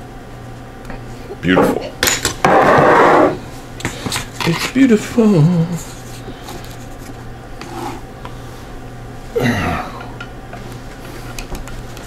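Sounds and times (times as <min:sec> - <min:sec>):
steady low hum: 0:00.0 - 0:12.0
man's wordless exclamation: 0:04.7 - 0:05.8.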